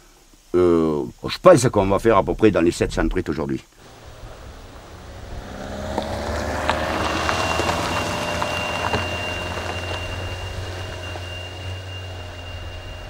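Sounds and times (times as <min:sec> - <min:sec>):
thin steady high tone: 0:03.8 - 0:13.0
van driving on dirt track: 0:03.8 - 0:13.0.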